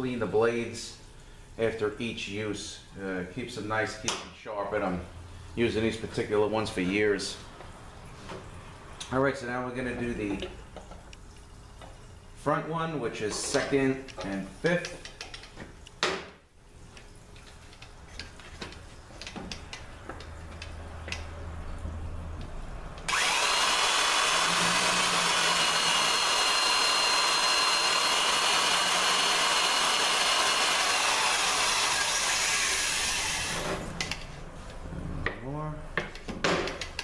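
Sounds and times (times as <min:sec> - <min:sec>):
electric drill whining: 0:23.1 - 0:33.9.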